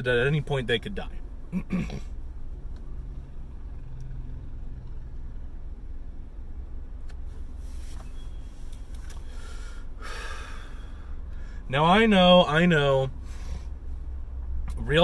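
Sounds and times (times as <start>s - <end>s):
man exhaling smoke: 9.2s - 11.6s.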